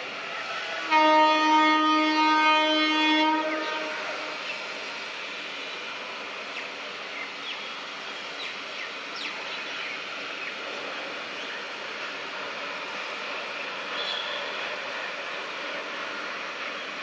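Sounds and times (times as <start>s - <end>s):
outdoor background noise: 0.0s - 17.0s
bird chirps: 14.0s - 14.5s.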